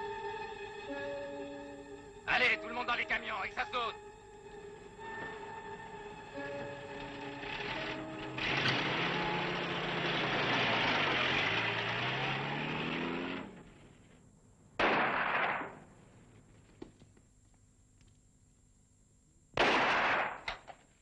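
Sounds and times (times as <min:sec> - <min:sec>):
vehicle engine revving: 0:05.0 - 0:14.2
loud blast: 0:14.8 - 0:15.9, 0:19.6 - 0:20.4.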